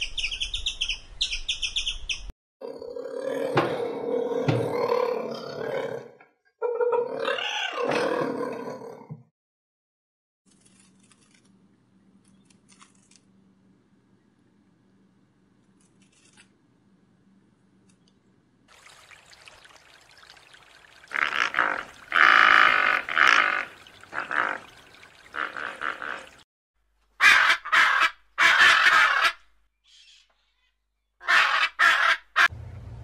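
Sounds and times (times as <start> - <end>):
harsh bird calls: 20.6 - 26.4.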